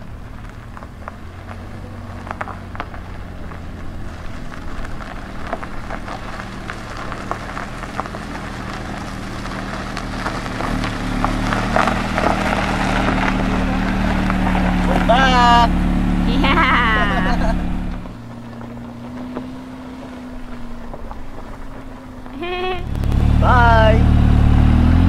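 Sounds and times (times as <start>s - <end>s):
car engine at low speed: 0.0s - 25.0s
tyres crackling on gravel: 0.0s - 25.0s.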